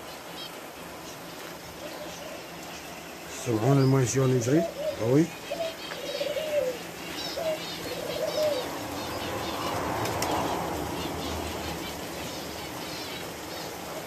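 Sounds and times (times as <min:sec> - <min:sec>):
small birds chirping: 0:00.0 - 0:14.0
dove cooing: 0:00.1 - 0:14.0
rushing noise: 0:08.6 - 0:13.4.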